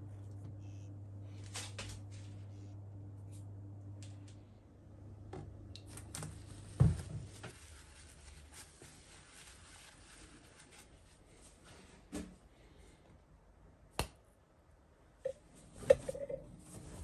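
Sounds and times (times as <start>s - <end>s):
hand rubbing ceramic bowl: 15.7s - 17.0s.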